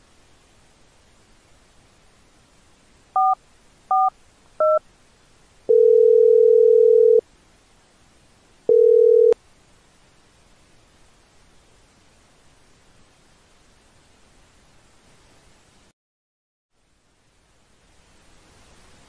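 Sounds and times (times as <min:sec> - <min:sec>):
phone keypad beeps: 0:03.2 - 0:04.8, 0:05.7 - 0:07.2, 0:08.7 - 0:09.4
phone ringing tone: 0:05.7 - 0:07.2, 0:08.7 - 0:09.4.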